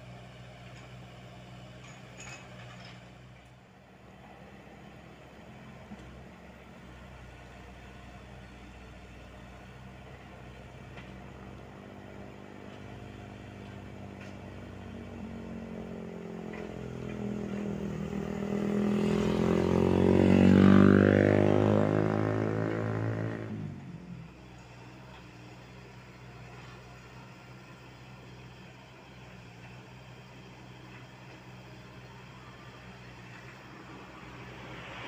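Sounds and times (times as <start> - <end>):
excavator diesel engine running: 0.0 - 19.9, 21.6 - 35.0
louder engine with sliding pitch: 15.2 - 24.2, 33.6 - 35.0.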